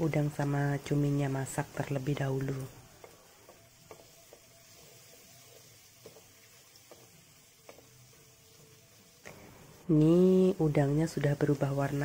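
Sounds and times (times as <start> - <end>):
seafood sizzling in a wok: 0.0 - 12.0
wooden spatula tapping a pan: 2.9 - 8.2.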